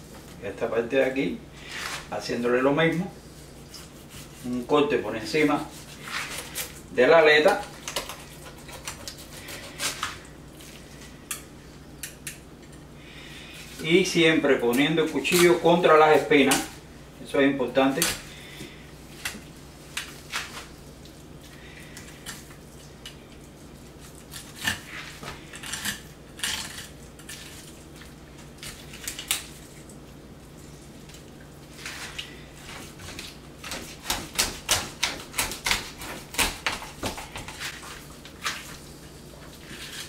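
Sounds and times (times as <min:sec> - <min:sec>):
knife clicking and scraping bones: 0:07.8 - 0:10.1.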